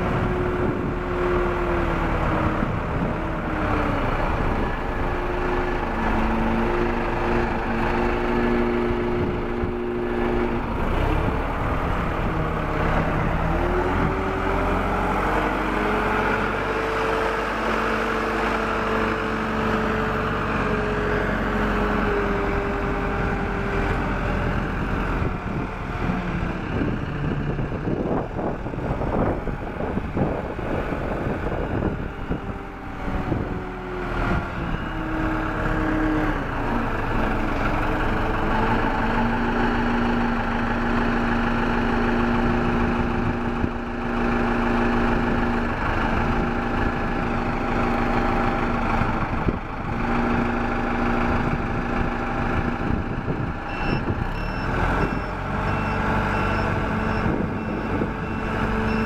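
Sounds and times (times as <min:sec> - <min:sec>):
telehandler engine running: 0:00.0 - 0:59.0
reversing alarm beeping: 0:53.7 - 0:59.0.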